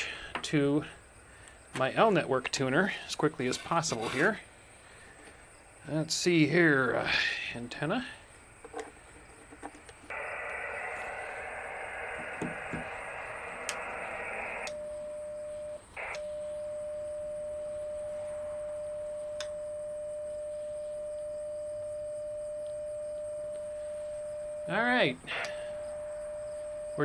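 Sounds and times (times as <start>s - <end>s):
radio static hiss: 0.0s - 1.0s, 10.0s - 14.8s, 15.9s - 16.2s, 23.8s - 27.0s.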